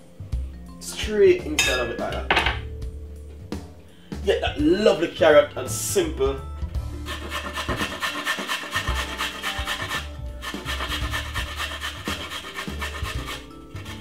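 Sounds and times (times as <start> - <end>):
carrot grating on metal grater: 7.0 - 14.0.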